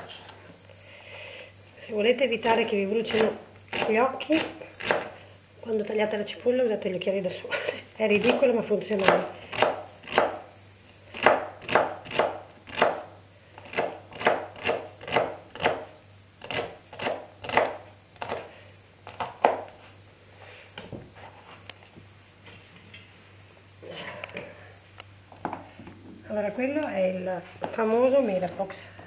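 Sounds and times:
knife chopping on plastic board: 3.1s - 4.1s, 4.8s - 5.2s, 9.0s - 10.4s, 11.2s - 19.8s.

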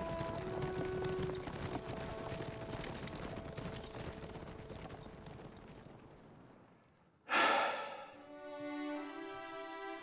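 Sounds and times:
rapid horse hoofbeats: 0.0s - 6.5s
background music of held notes: 8.2s - 10.0s.

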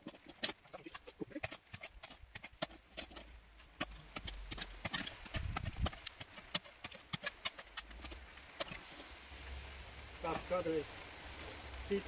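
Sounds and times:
spade digging into stony soil: 0.0s - 9.2s.

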